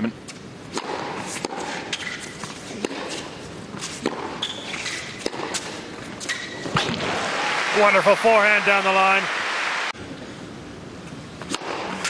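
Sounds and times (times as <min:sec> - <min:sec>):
racket striking tennis ball: 0:00.7 - 0:07.1, 0:11.4 - 0:12.0
shoes squeaking on court: 0:01.2 - 0:06.9.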